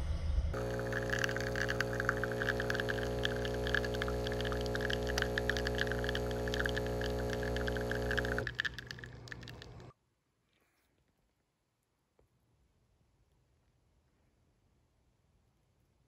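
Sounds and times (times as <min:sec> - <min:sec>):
coffee stream spattering into milk: 0:00.6 - 0:09.8
coffee machine humming: 0:00.6 - 0:09.9.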